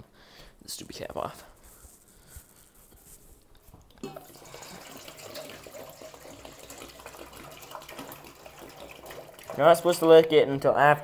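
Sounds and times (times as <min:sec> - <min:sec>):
water pouring into metal bowl: 0:04.0 - 0:10.0.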